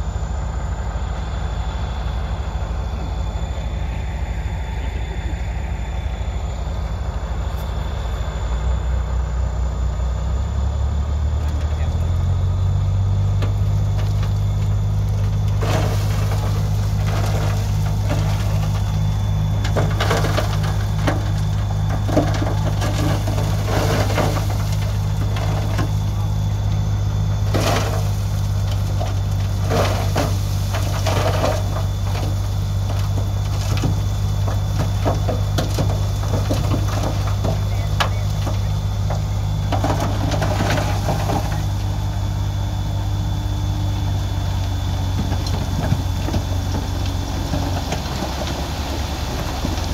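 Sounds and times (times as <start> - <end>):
diesel truck engine running: 0.0 - 49.9
rocky soil clattering out: 11.5 - 49.9.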